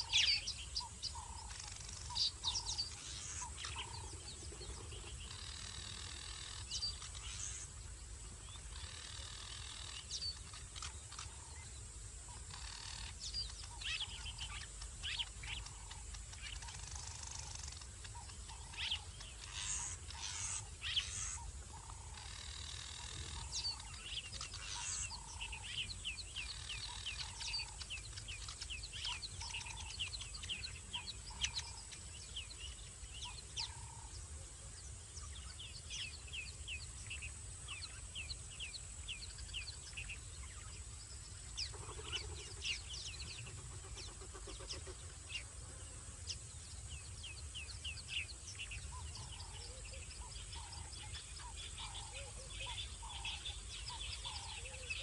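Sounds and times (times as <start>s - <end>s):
animals chirping: 0.0s - 7.7s, 12.3s - 34.4s, 41.4s - 45.8s, 47.4s - 55.0s.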